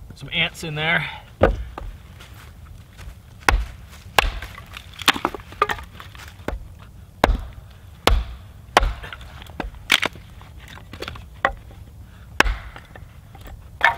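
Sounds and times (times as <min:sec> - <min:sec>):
axe chopping wood: 0:01.4 - 0:02.0, 0:03.5 - 0:11.7, 0:12.4 - 0:13.9.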